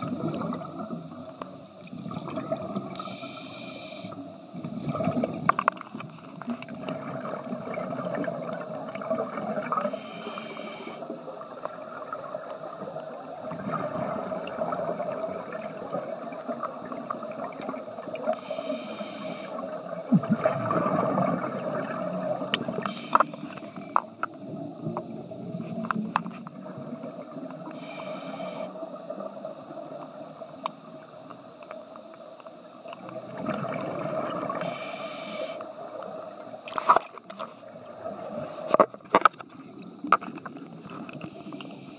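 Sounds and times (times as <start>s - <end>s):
regulator hissing inhalation: 3.0s - 4.2s, 9.8s - 11.1s, 17.6s - 19.7s, 22.8s - 24.2s, 27.7s - 29.6s, 34.6s - 35.6s, 41.2s - 41.9s.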